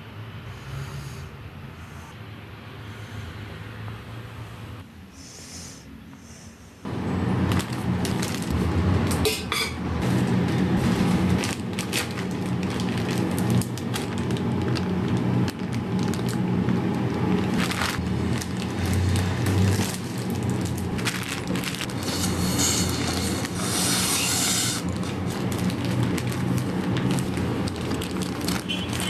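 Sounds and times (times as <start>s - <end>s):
plastic bags crinkling: 7.2s - 9.3s, 10.0s - 29.0s.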